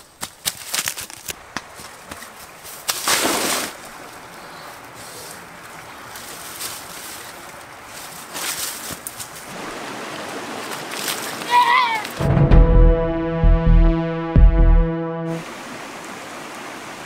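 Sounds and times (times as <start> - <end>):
dry leaves and grass rustling: 0.0 - 9.6, 10.3 - 12.2.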